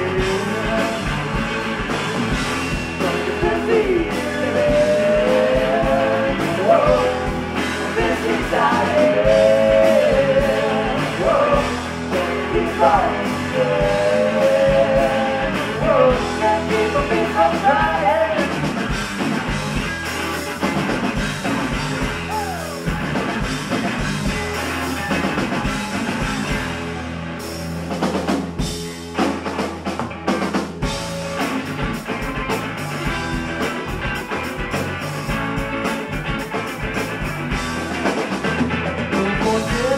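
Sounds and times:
live rock band playing: 0.0s - 39.9s
woman singing: 8.0s - 18.4s, 39.2s - 39.9s.

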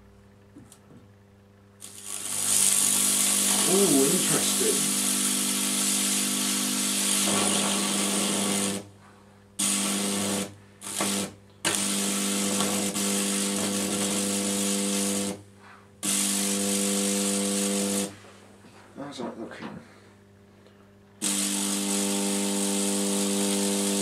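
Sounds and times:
electrical arc buzzing and crackling: 1.8s - 8.9s, 9.6s - 18.3s, 21.2s - 24.0s.

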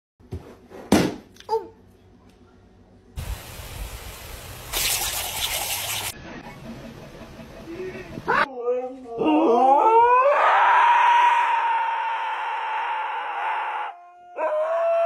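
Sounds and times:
sprinkler water jet hissing: 3.2s - 6.2s.

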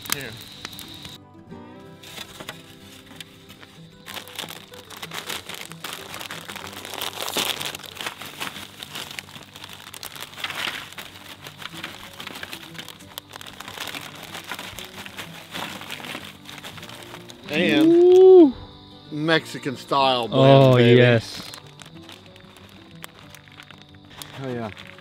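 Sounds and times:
chips falling onto paper plates: 0.0s - 1.1s, 4.0s - 18.3s, 20.6s - 25.0s
foil chip bag crinkling: 0.0s - 1.1s, 2.0s - 18.3s, 20.4s - 25.0s.

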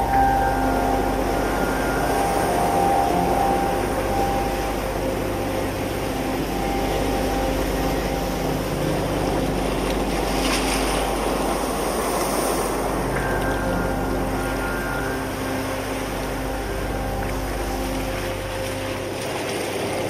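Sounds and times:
steady sustained tones: 0.0s - 20.0s
surf washing over rocks: 0.0s - 20.0s.

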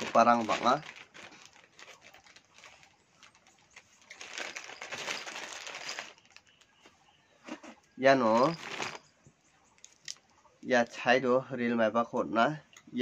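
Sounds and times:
packet crinkling and tearing: 0.0s - 6.6s, 8.3s - 9.0s
packet rustling and clicking: 0.0s - 6.9s, 7.5s - 9.1s.

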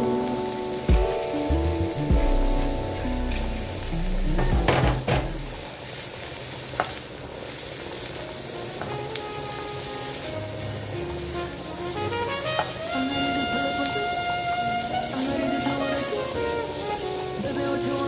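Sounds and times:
food sizzling in a pan: 0.0s - 18.0s
utensil knocking on pan: 4.4s - 5.5s.

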